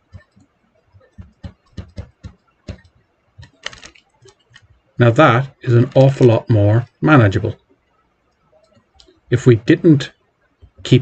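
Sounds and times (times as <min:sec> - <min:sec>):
stylus tapping on tablet screen: 0:00.0 - 0:04.7.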